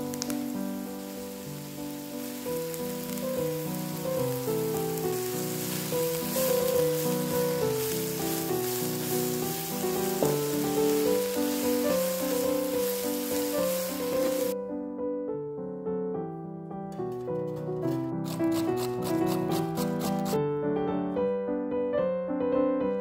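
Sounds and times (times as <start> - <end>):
vegetables sizzling in a pan: 0.0 - 14.6
short scrapes: 17.0 - 20.4.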